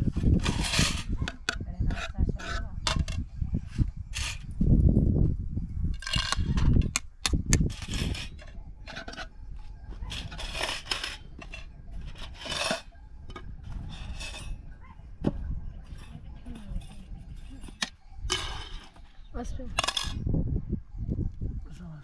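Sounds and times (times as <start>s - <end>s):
scraping strokes: 0.0s - 4.5s, 7.6s - 9.4s, 10.0s - 14.6s.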